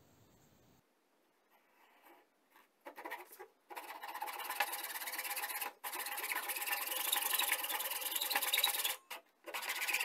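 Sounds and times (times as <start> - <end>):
hacksaw sawing wood: 2.9 - 10.0.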